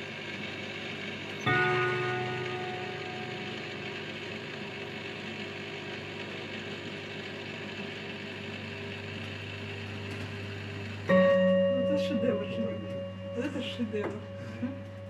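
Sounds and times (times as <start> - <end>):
mechanical hum: 0.0 - 15.0.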